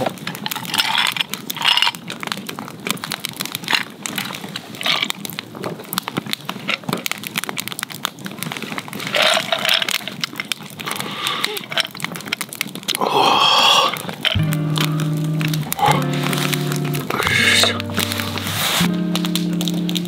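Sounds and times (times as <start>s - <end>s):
wood fire crackling and popping: 0.0s - 20.0s
short hissing: 17.1s - 18.9s.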